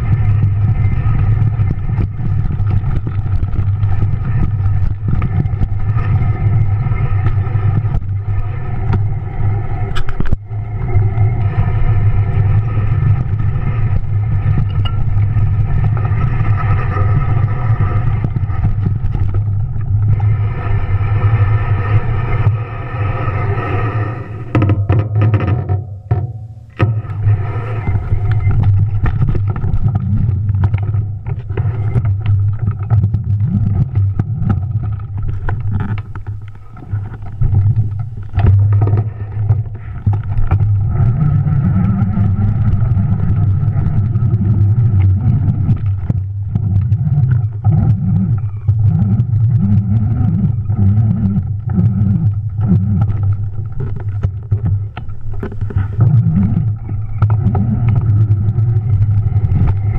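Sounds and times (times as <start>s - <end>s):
heavy low rumble: 0.0s - 59.9s
bike knocking and rattling: 14.1s - 16.5s, 24.5s - 27.3s.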